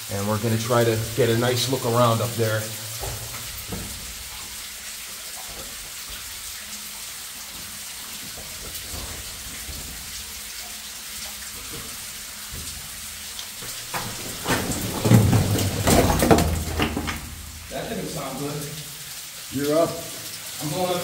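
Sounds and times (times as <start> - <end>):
water trickling and dripping: 0.0 - 21.0
loud bumps: 13.6 - 17.7
scuffs and knocks on rock: 13.8 - 17.4.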